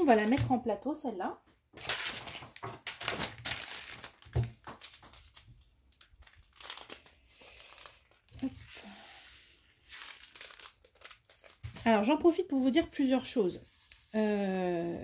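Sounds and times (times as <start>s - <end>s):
plastic bags crinkling: 1.8s - 9.0s, 9.8s - 13.3s.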